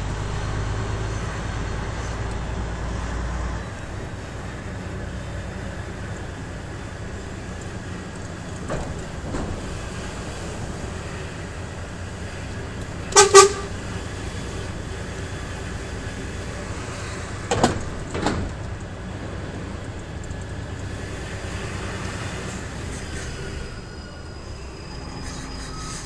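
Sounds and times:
truck diesel engine running: 0.0s - 24.4s
truck horn toots: 13.0s - 14.0s.

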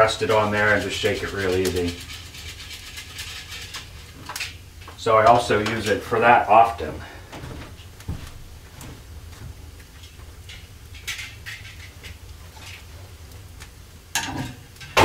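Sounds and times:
wood fire crackling: 0.0s - 15.0s
footsteps on wooden floorboards: 6.9s - 9.6s.

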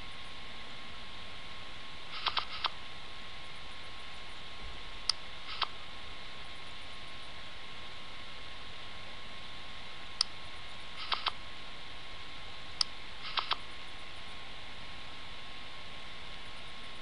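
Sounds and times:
faint hum: 0.0s - 17.0s
sharp click: 2.1s - 2.8s, 5.1s - 5.7s, 11.0s - 11.4s, 12.8s - 13.6s.

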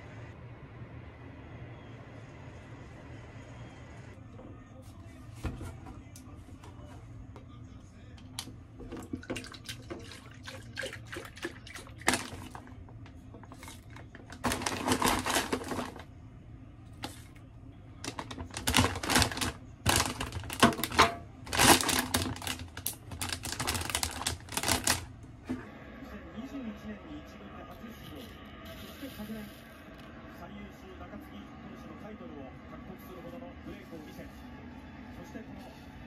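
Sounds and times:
plastic bag crinkling: 11.9s - 12.8s, 13.4s - 16.1s, 18.0s - 25.1s.

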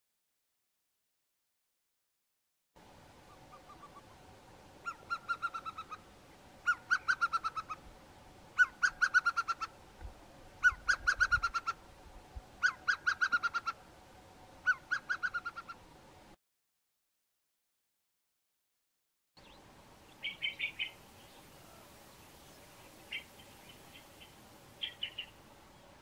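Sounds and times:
hawk piping whistles: 6.6s - 7.8s.

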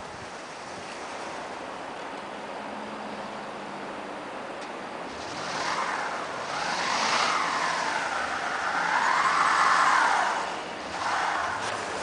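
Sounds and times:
car wheels spinning in snow: 5.1s - 12.0s.

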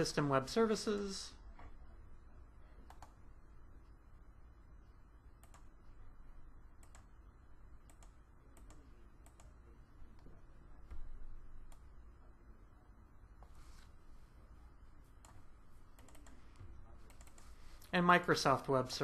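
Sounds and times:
faint low hum: 0.0s - 19.0s
computer mouse clicks: 2.8s - 3.2s, 5.4s - 5.8s, 6.8s - 7.1s, 7.8s - 9.6s, 11.6s - 11.9s, 15.2s - 17.9s.

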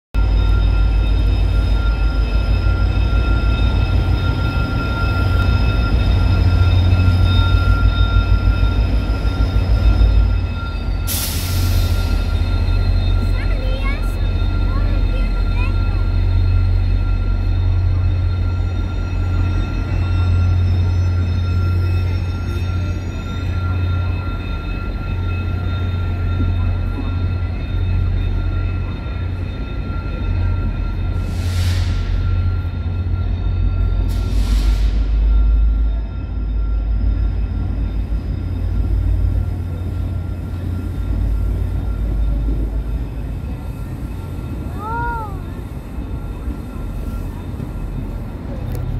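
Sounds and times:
diesel locomotive engine rumbling: 0.1s - 48.9s
faint gliding squeal: 0.2s - 48.9s
steady whining tones: 0.2s - 48.9s.

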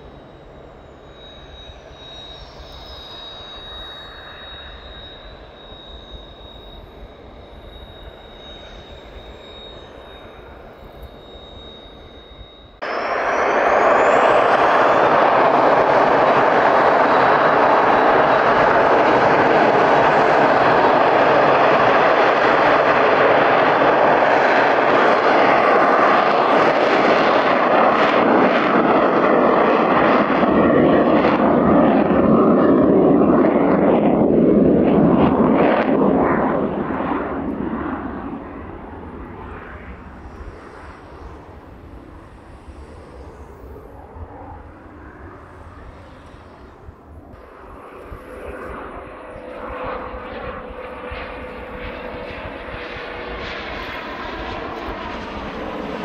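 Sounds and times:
jet engines at takeoff power: 0.0s - 56.0s.

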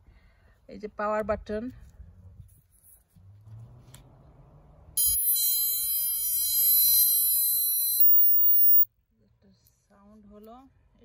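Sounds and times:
device click: 5.0s - 8.9s
high-pitched electronic tone: 5.0s - 8.9s.

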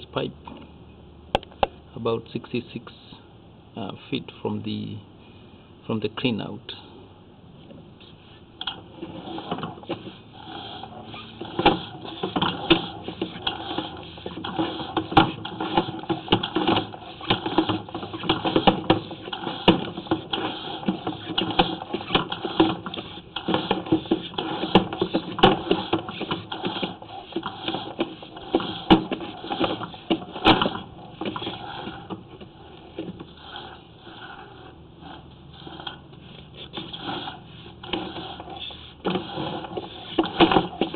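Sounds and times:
cable clicking and rattling on reel: 8.6s - 40.9s.

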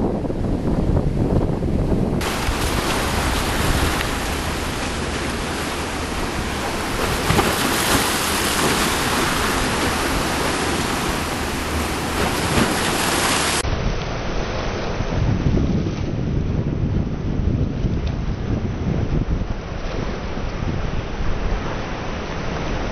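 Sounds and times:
waves breaking: 0.0s - 16.1s, 19.4s - 22.9s
low wind rumble: 0.0s - 22.9s.

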